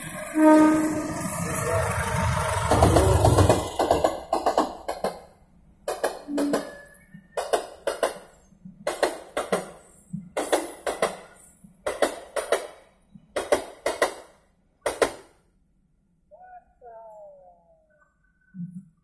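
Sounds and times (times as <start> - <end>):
train wheels clattering over rail joint: 2.3 - 15.4.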